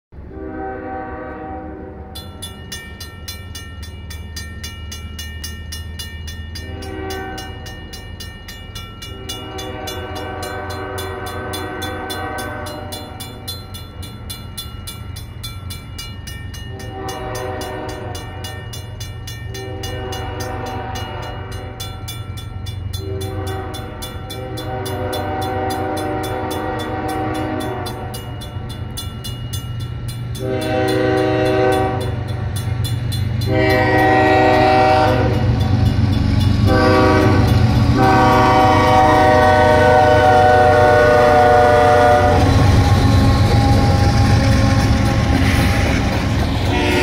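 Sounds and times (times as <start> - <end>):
train air horn blasts: 0.2 - 2.2, 6.6 - 7.7, 9.1 - 13.4, 16.7 - 18.6, 19.5 - 21.8, 23.0 - 28.3, 30.4 - 32.3, 33.4 - 35.6, 36.5 - 47.0
train rumble: 0.2 - 47.0
crossing signal bell ringing: 2.1 - 47.0.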